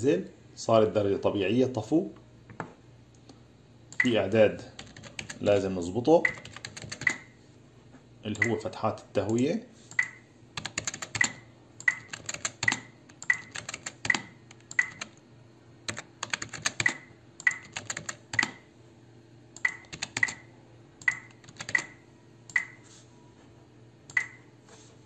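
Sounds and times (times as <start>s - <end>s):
faint electrical hum: 0.0s - 25.0s
computer keys clicking: 4.8s - 5.4s, 6.2s - 7.3s, 9.3s - 15.2s, 15.9s - 18.6s, 19.6s - 20.4s, 21.0s - 22.8s
mouse buttons clicking: 22.5s - 22.8s.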